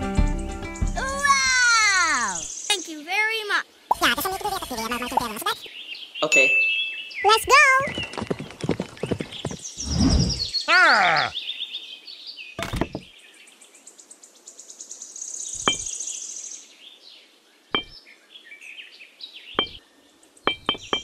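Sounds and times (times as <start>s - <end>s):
small birds chirping: 0.6s - 21.0s
light sharp knocks: 17.8s - 18.0s, 20.5s - 21.0s.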